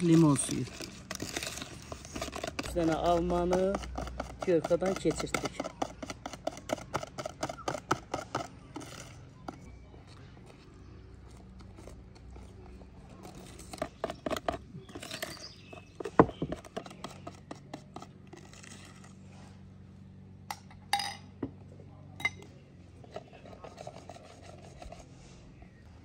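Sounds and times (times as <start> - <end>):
whisk clicking against plastic bowl: 2.4 - 9.0.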